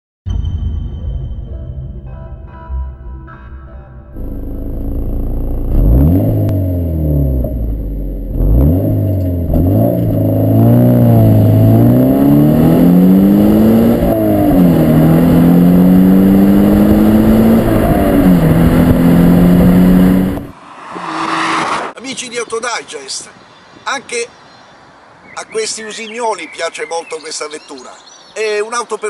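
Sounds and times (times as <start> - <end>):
car engine accelerating: 4.1 - 22.0.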